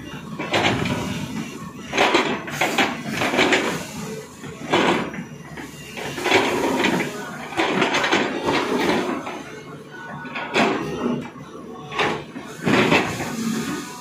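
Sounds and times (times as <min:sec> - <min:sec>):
excavator bucket scraping rock: 0:00.4 - 0:09.5, 0:12.0 - 0:14.0.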